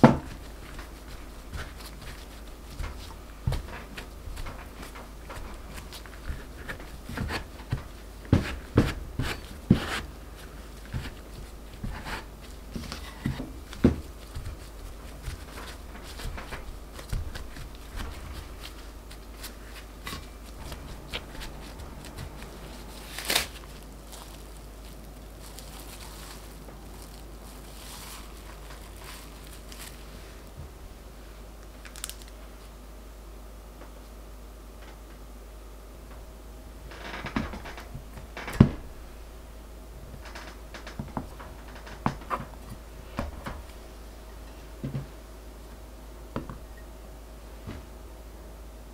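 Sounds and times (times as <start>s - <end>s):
metal scrapers knocking and scraping: 0.0s - 23.9s
hands patting dough: 0.0s - 30.9s.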